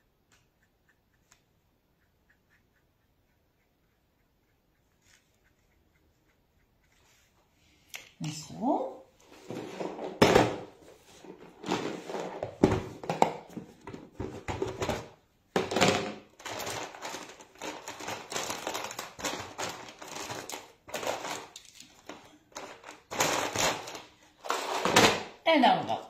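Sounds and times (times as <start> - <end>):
art materials rummaged on table: 9.3 - 25.3.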